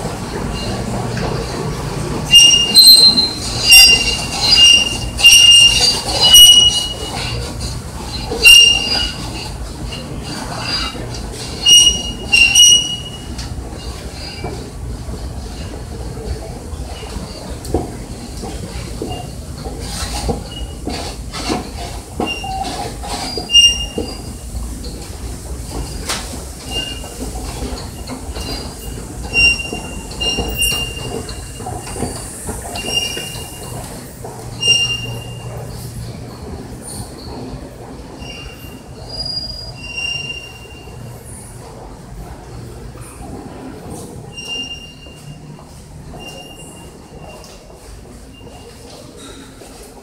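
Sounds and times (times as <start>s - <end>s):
high-pitched metallic squeals: 2.3s - 7.5s, 8.1s - 11.0s, 11.6s - 14.5s, 22.2s - 24.3s, 28.0s - 32.1s, 34.6s - 35.6s, 44.3s - 45.5s, 46.1s - 47.5s.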